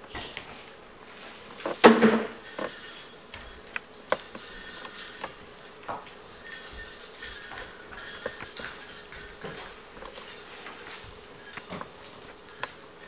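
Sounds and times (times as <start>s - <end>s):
jingle bells shaking: 1.5s - 13.0s.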